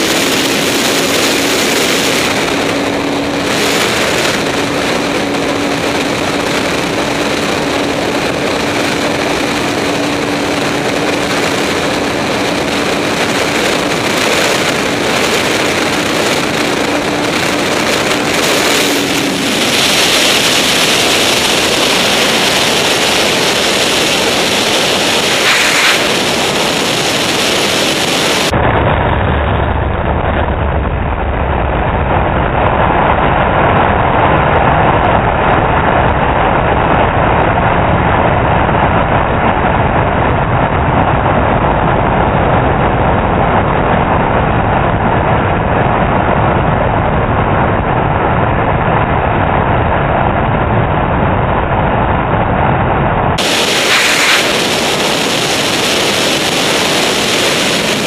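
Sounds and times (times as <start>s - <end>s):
motorcycle engine: 0.0s - 58.0s
wind rushing on microphone: 0.0s - 58.0s.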